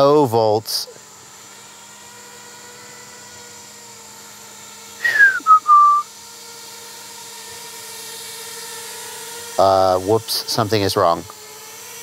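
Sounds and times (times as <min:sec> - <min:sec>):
faint steady hum: 0:00.0 - 0:11.8
person whistling: 0:05.0 - 0:06.1.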